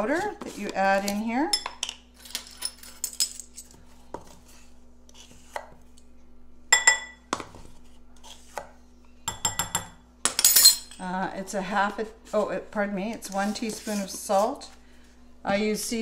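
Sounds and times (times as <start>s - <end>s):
metal spoons clinking on glass bowl: 9.3s - 11.0s.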